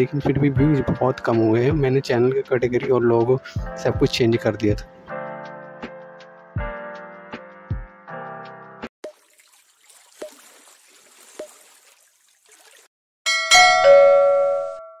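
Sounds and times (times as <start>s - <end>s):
background music: 0.0s - 8.9s
water-drop plinks: 9.0s - 12.9s
bell-like chime: 13.3s - 15.0s.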